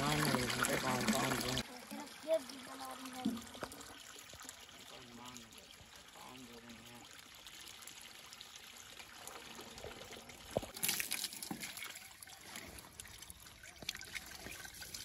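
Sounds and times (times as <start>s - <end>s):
water splash: 0.0s - 1.6s, 9.9s - 12.1s
water pouring into plastic drum: 0.0s - 15.0s.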